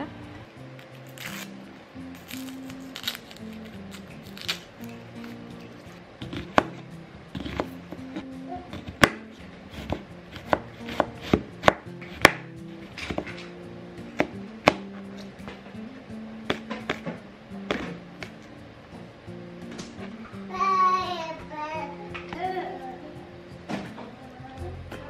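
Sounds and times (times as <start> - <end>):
knife chopping on cutting board: 6.2 - 13.5, 14.1 - 15.5, 16.5 - 18.4.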